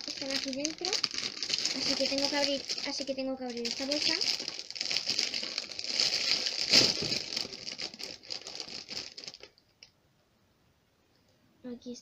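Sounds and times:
plastic bag crinkling: 0.0s - 9.6s.

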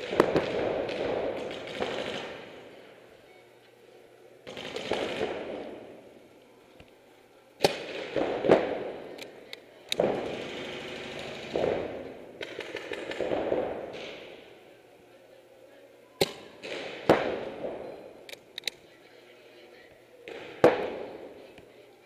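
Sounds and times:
paintball markers firing: 0.0s - 2.5s, 4.4s - 5.7s, 7.6s - 14.3s, 16.2s - 17.5s.

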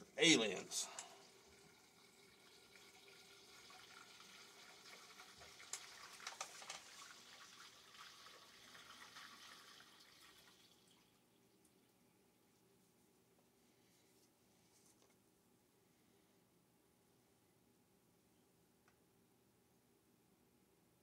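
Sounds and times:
faint rustling of hands: 12.4s - 16.1s.

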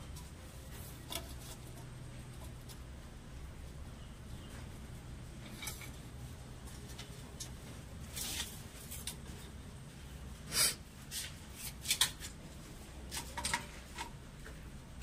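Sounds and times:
low steady hum: 0.0s - 15.0s
plastic pipe fittings scraping: 0.7s - 2.8s, 5.4s - 6.0s.

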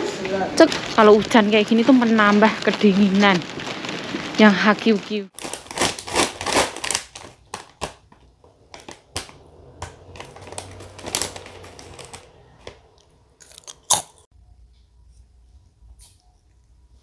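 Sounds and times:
crinkling and crackling clicks: 0.0s - 14.2s.

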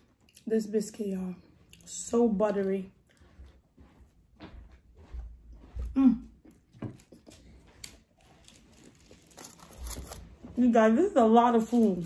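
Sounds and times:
person chewing: 5.6s - 10.4s.

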